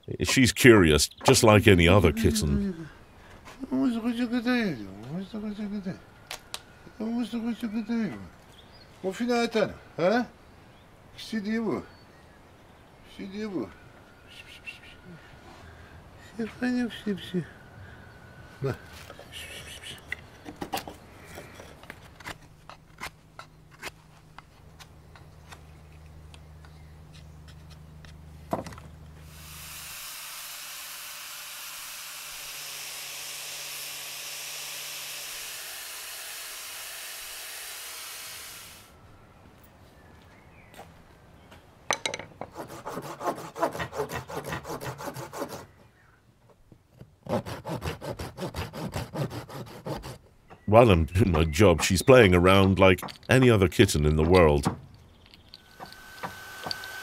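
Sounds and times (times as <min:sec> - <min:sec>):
angle grinder sanding: 0:29.3 - 0:38.8, 0:55.7 - 0:57.0
hand saw cutting wood: 0:29.3 - 0:38.8, 0:42.5 - 0:45.7, 0:47.2 - 0:50.3, 0:55.7 - 0:57.0
knife carving wood: 0:42.5 - 0:45.7, 0:47.2 - 0:50.2.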